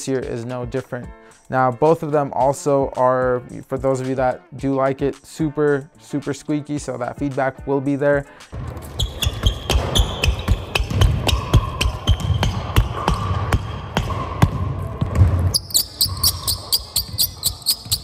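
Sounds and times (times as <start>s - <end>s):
basketball bouncing: 8.5s - 18.0s
shoes squeaking on court: 8.6s - 18.0s
high ticks: 15.6s - 18.0s.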